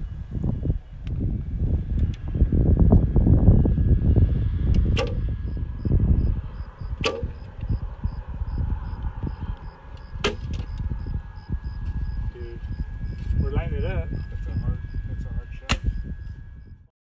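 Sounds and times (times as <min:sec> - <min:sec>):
bowstring snapping: 0:05.0 - 0:05.2.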